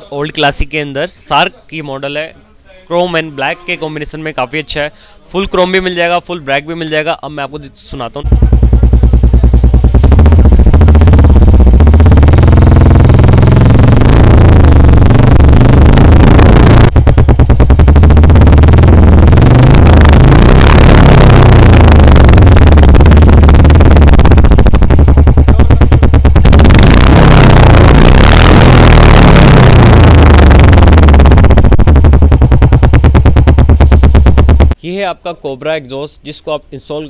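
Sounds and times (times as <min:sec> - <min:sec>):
motorcycle engine revving: 0:08.2 - 0:34.8.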